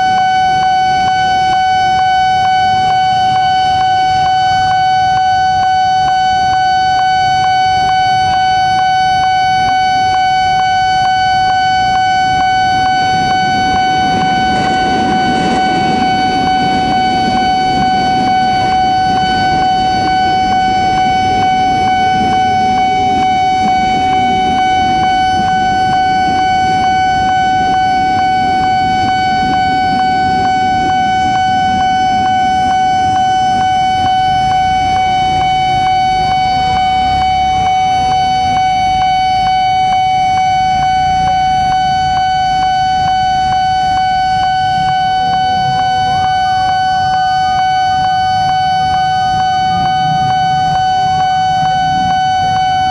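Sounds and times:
level-crossing alarm ringing: 0:00.0 - 0:52.9
electric train rumbling past: 0:10.6 - 0:37.6.

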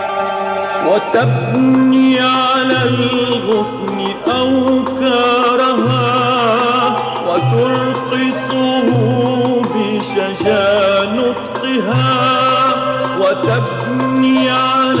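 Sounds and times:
religious song with ornamented melody: 0:00.0 - 0:15.0.

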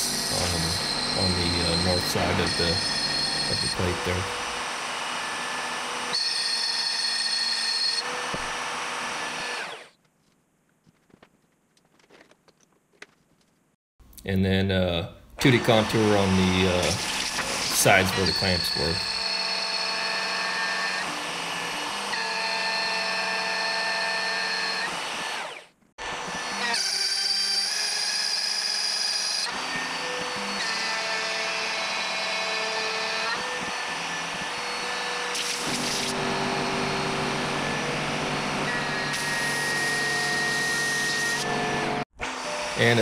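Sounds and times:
end mill cutting aluminum: 0:00.0 - 0:08.6
router spindle high whine: 0:00.0 - 0:09.9, 0:15.4 - 0:43.0.

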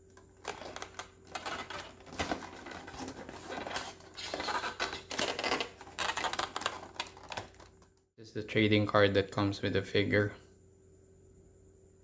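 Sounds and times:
plastic and cardboard packaging crinkling: 0:00.0 - 0:08.0.

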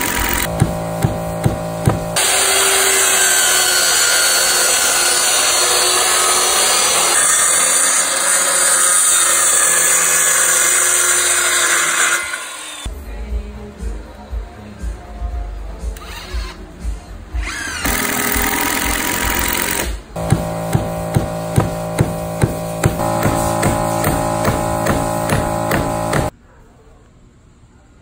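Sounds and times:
circular saw cutting wood: 0:00.0 - 0:12.9, 0:17.5 - 0:26.3
thumps: 0:00.4 - 0:02.2, 0:20.2 - 0:26.3.

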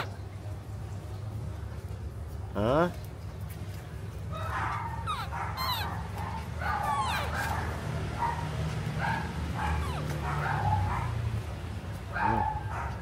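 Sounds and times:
high-pitched animal yelps: 0:04.4 - 0:06.1, 0:06.7 - 0:07.5, 0:09.6 - 0:10.2.

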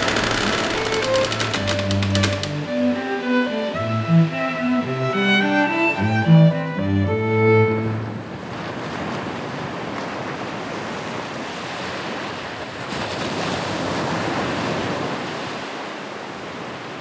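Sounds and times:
ocean waves washing in: 0:07.6 - 0:17.0.

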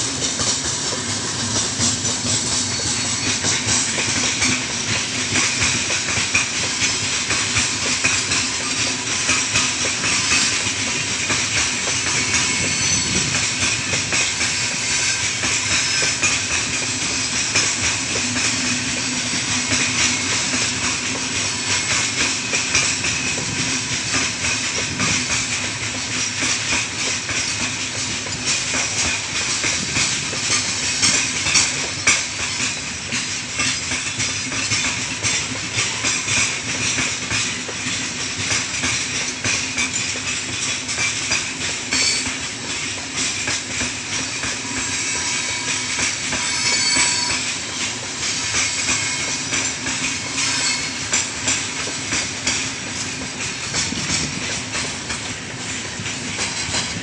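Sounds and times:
train wheels clattering over rail joints: 0:00.0 - 0:57.0
high-pitched brake squeal: 0:02.5 - 0:04.6, 0:12.0 - 0:16.6, 0:41.9 - 0:42.5, 0:44.4 - 0:51.3.

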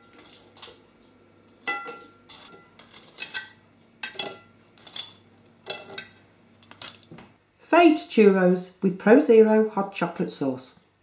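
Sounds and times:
metal tongs clinking on tray: 0:01.5 - 0:07.1.

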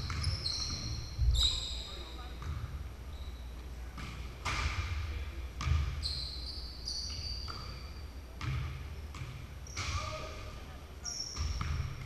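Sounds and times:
basketballs bouncing on hardwood: 0:00.0 - 0:01.6, 0:02.4 - 0:02.8, 0:05.6 - 0:06.1, 0:08.4 - 0:10.2, 0:11.3 - 0:12.0
high shoe squeak: 0:00.0 - 0:02.3, 0:03.1 - 0:03.7, 0:05.9 - 0:08.2, 0:09.6 - 0:10.3, 0:11.0 - 0:11.9.

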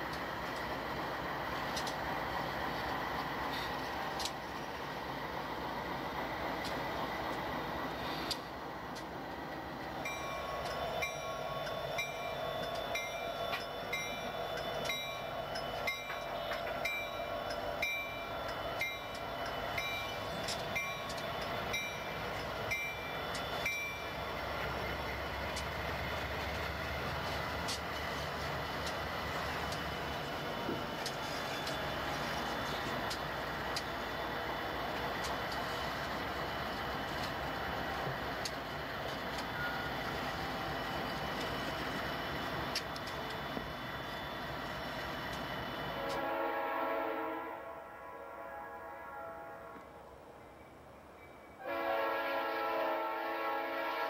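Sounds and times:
freight train rumbling: 0:00.0 - 0:54.0
wheel clicks over rail joints: 0:01.6 - 0:02.1, 0:10.0 - 0:34.1
crossing bell ringing: 0:09.9 - 0:28.5, 0:39.5 - 0:41.8, 0:50.4 - 0:51.9.

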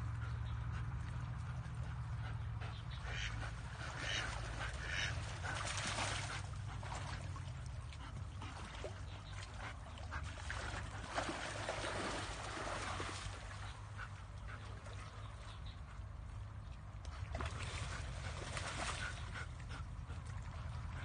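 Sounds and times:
steady low rumble: 0:00.0 - 0:21.0
duck quacking: 0:03.0 - 0:05.2.

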